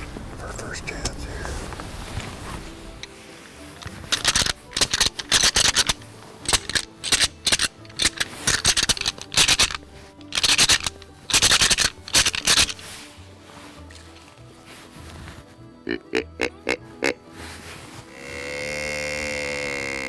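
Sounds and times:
quiet background music: 0.0s - 20.0s
antlers clashing and clattering: 2.9s - 12.9s.

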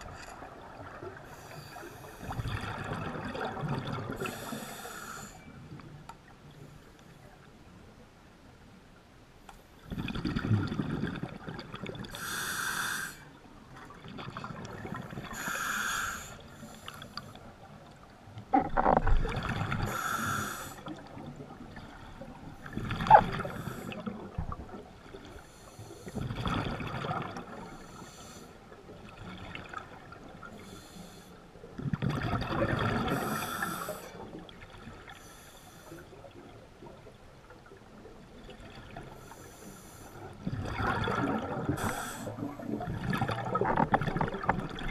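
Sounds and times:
exhaled bubbles rumbling: 2.2s - 4.4s, 9.8s - 12.2s, 17.7s - 20.0s, 20.9s - 25.3s, 26.1s - 27.8s, 31.7s - 33.5s, 40.3s - 44.9s
diver inhaling through regulator: 4.2s - 5.4s, 12.2s - 13.3s, 15.2s - 17.4s, 19.8s - 20.9s, 22.8s - 24.1s, 27.6s - 28.6s, 33.0s - 34.2s, 41.7s - 42.5s.

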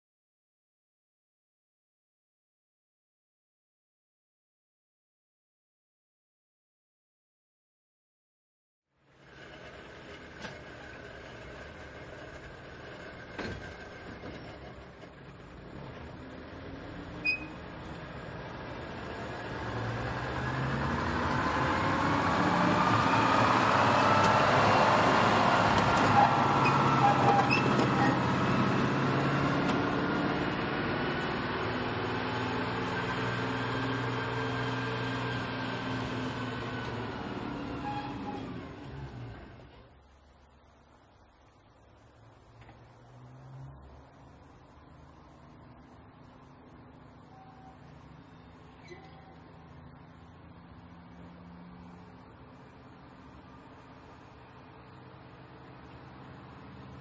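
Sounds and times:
railcar diesel engine running: 9.1s - 19.6s, 24.2s - 39.7s.

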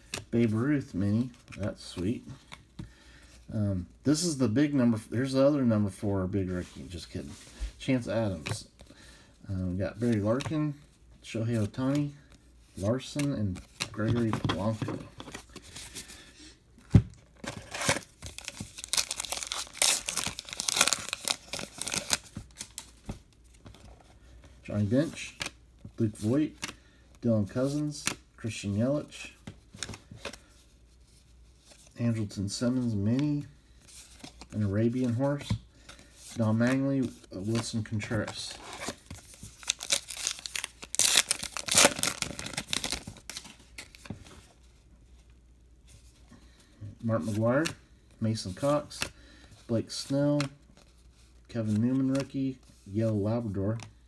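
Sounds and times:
foil wrapper tearing and crinkling: 17.6s - 22.2s, 39.6s - 43.0s.

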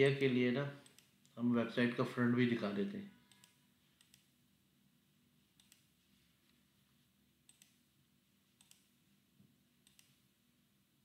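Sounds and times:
computer mouse clicks: 0.8s - 1.4s, 3.3s - 4.3s, 5.6s - 6.0s, 7.4s - 7.8s, 8.6s - 9.0s, 9.8s - 10.2s.

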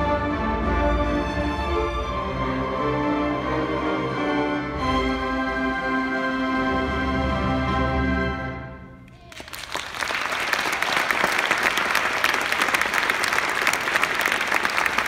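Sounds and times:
audience applause: 9.1s - 15.0s.

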